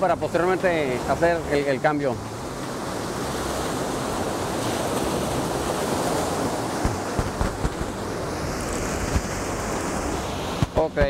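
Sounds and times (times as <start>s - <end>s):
ocean surf on beach: 0.0s - 11.0s
wind on microphone: 2.8s - 11.0s.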